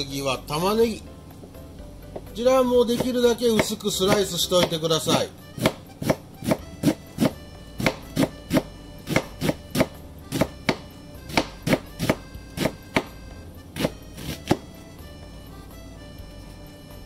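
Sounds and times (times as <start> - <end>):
knife chopping on wooden board: 2.2 - 13.2, 13.8 - 14.7.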